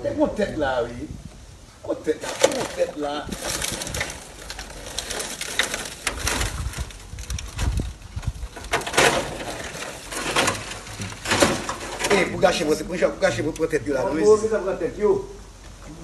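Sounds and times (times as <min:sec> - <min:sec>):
metal sheets crunching and scraping: 0:02.1 - 0:12.8.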